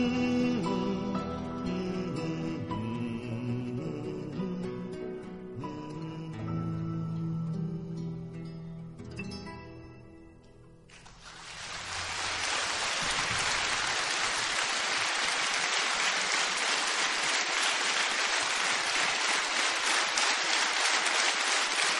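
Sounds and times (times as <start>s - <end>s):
audience applause: 11.0s - 21.9s.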